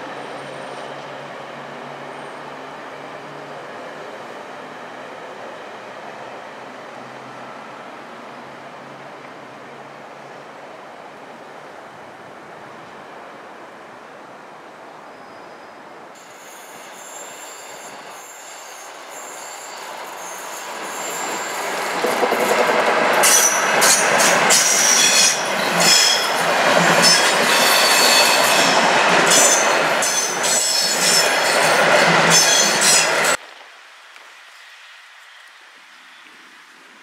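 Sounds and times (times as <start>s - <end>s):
train wheels squealing: 0.0s - 3.8s, 15.0s - 22.6s, 23.2s - 33.4s
train wheels clattering on rails: 16.2s - 33.4s.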